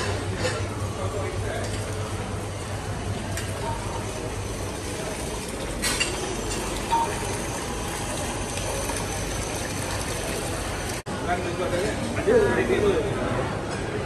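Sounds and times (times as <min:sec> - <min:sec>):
general din of restaurant: 0:00.0 - 0:14.0
utensils clinking: 0:04.6 - 0:10.1.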